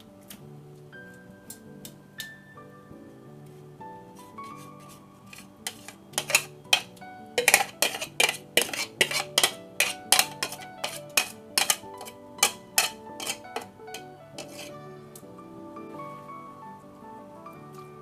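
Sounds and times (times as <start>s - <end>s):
soft background music: 0.0s - 18.0s
metal utensil clinking on cookware: 4.4s - 14.8s.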